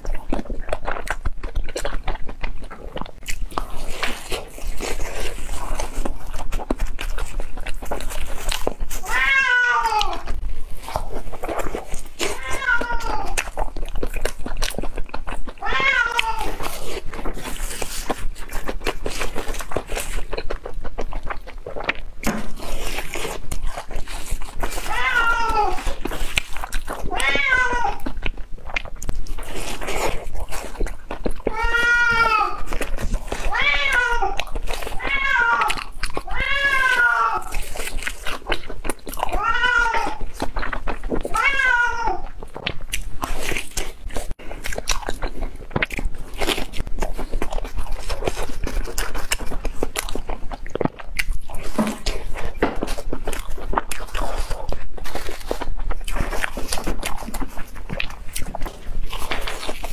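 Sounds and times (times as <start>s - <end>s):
crunchy chewing: 0.0s - 59.9s
cat meowing: 9.0s - 10.4s, 12.2s - 13.5s, 15.6s - 16.7s, 24.8s - 26.0s, 27.0s - 28.2s, 31.4s - 32.8s, 33.4s - 37.6s, 39.2s - 40.4s, 41.3s - 42.4s.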